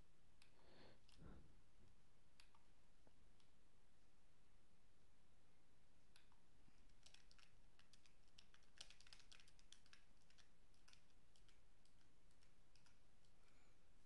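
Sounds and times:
faint keyboard typing: 6.1 - 13.8.

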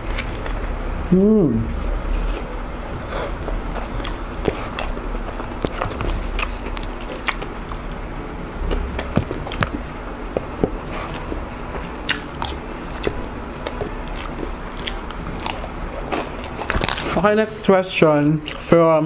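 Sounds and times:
chewing crispy food: 3.4 - 8.0, 10.8 - 17.3, 18.2 - 18.8.

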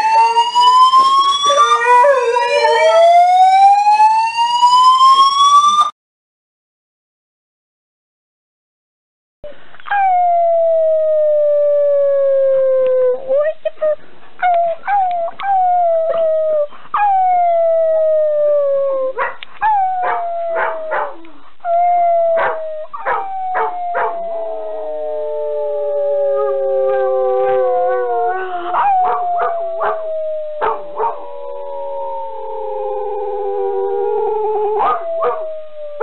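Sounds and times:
dog howling: 1.4 - 3.3, 14.4 - 36.0
dog yipping and barking: 19.2 - 21.3, 22.4 - 24.1.

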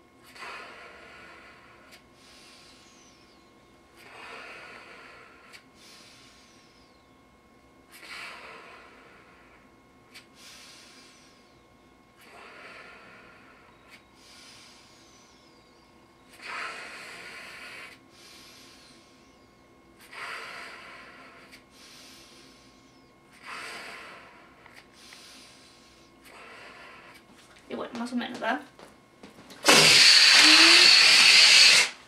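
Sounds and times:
sharp breaths through nose: 0.3 - 3.3, 4.0 - 7.0, 10.1 - 11.5, 12.2 - 15.5, 16.3 - 19.4, 20.0 - 27.2, 29.6 - 32.0
person blowing into balloon: 29.6 - 32.0.

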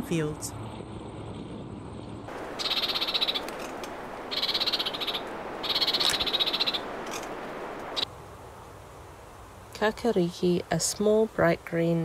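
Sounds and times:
frog croaking: 2.3 - 8.1
steady background hiss: 2.3 - 12.0.

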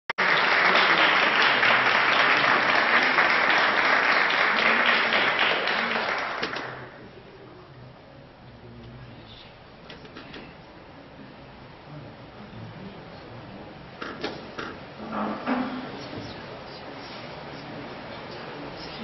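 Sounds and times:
audience applauding: 0.2 - 7.0.

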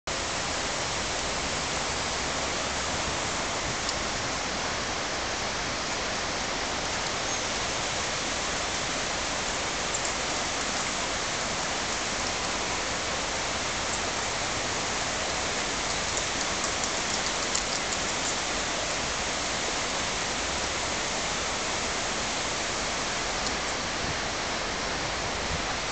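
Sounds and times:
steady hiss: 0.1 - 25.9
faint high ticks: 9.9 - 10.2, 15.8 - 18.4.

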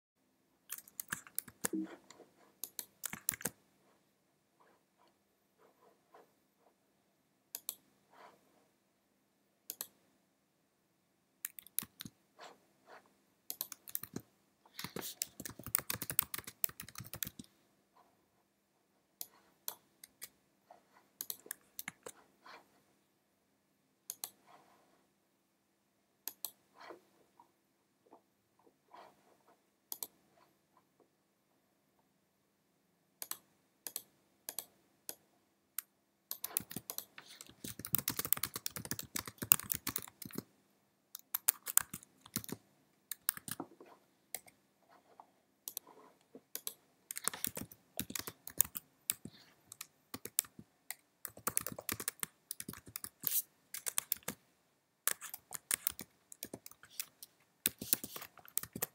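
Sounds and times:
typing on computer keyboard: 0.7 - 2.0, 2.6 - 3.6, 11.4 - 12.1, 13.5 - 17.5, 21.2 - 22.2, 36.3 - 40.5, 41.2 - 43.7, 46.5 - 54.4, 55.0 - 58.9.

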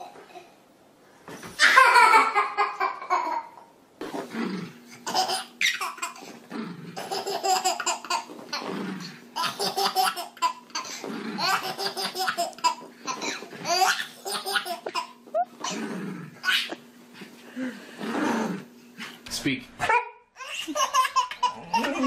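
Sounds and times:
babies laughing: 1.6 - 3.6, 5.1 - 6.4, 7.0 - 8.7, 9.4 - 15.8, 16.4 - 16.8, 19.9 - 22.0.

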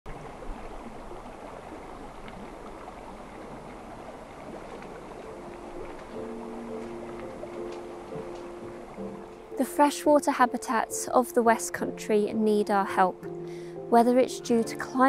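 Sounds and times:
river flowing over stones: 0.1 - 10.3
faint clicks: 4.6 - 9.5
held music notes: 5.1 - 15.0.

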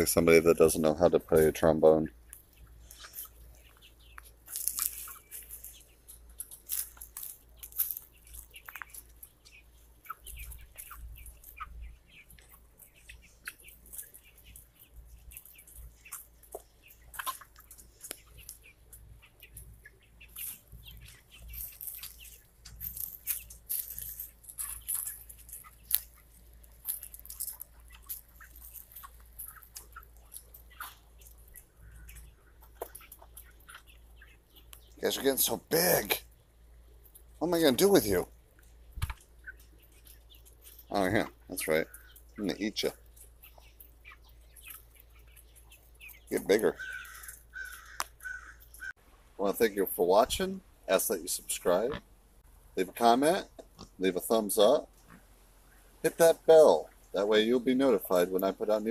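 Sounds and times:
chickens peeping and chirping: 0.0 - 58.9.

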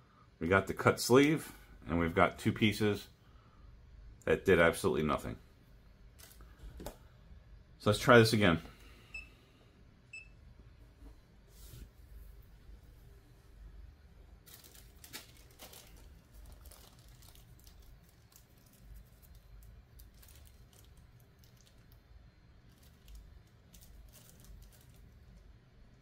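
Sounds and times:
faint low steady hum: 0.0 - 26.0
crinkling and rustling: 6.1 - 7.0, 14.2 - 25.4.

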